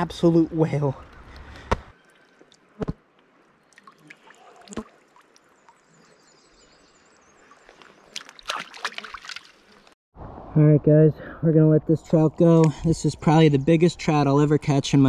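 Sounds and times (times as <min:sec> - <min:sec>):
faint moving water: 0:00.0 - 0:10.6.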